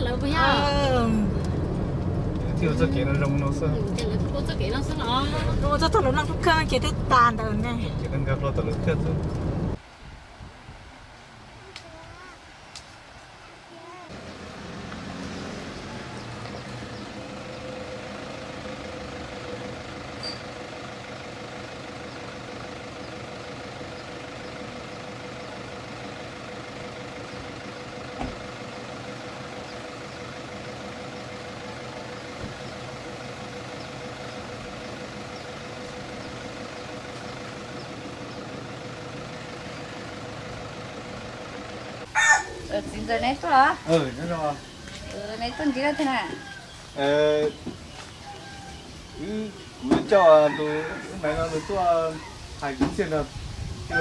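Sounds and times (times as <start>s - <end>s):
pickup engine idling: 14.1s - 53.9s.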